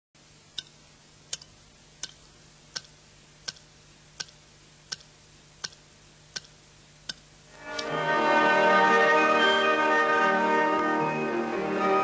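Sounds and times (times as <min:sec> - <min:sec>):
faint low hum: 0:00.2 - 0:12.0
steady ticking: 0:00.5 - 0:07.9.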